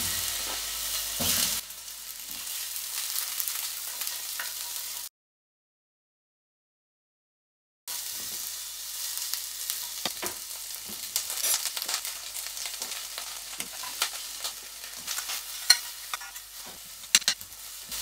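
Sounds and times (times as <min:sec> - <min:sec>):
onions sizzling in oil: 0:00.0 - 0:05.1, 0:07.9 - 0:18.0
metal spoon clinking on a pan: 0:15.6 - 0:16.4, 0:17.1 - 0:17.4.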